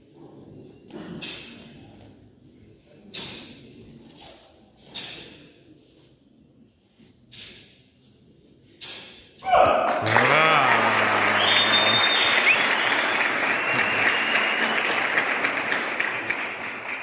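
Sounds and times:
crowd cheering and applauding: 9.8 - 17.0.

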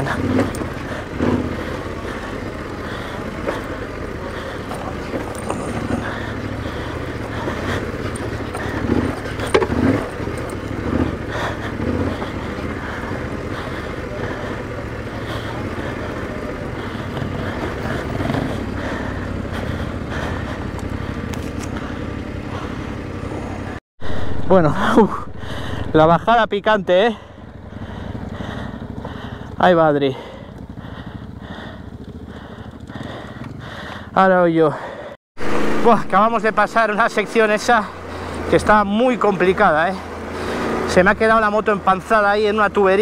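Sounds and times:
motorcycle engine at low revs: 0.0 - 43.0.

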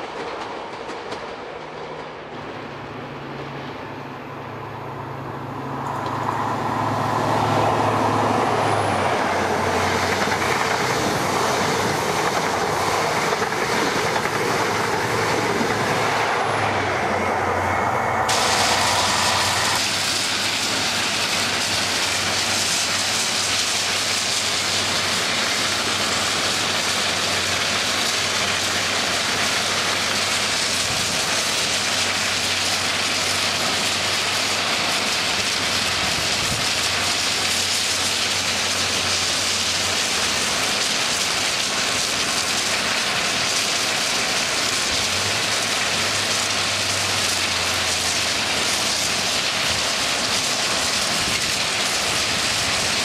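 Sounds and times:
train passing close by: 0.0 - 53.0
low diesel hum: 2.6 - 41.8.

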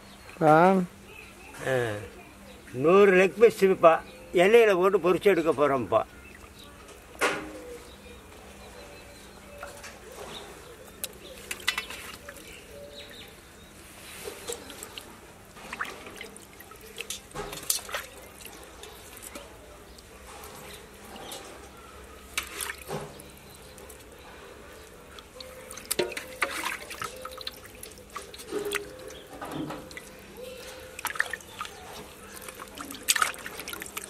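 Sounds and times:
water splashing in steel basin: 14.2 - 19.5, 20.4 - 24.2, 24.8 - 34.0.

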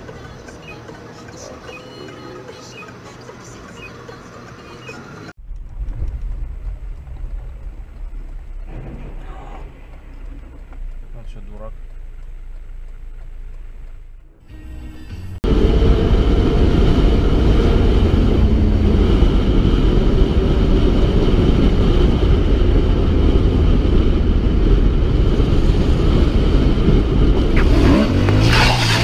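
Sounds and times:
wind and motorcycle engine rush: 15.4 - 29.0.

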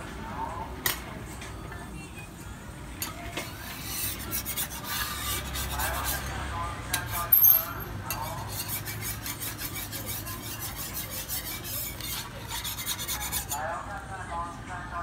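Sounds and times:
metal spatula scraping griddle: 3.0 - 7.3, 8.0 - 13.7.

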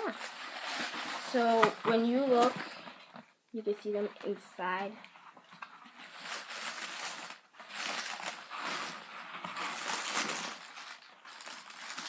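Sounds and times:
paper rustling and crinkling: 0.0 - 3.3, 3.9 - 12.0.

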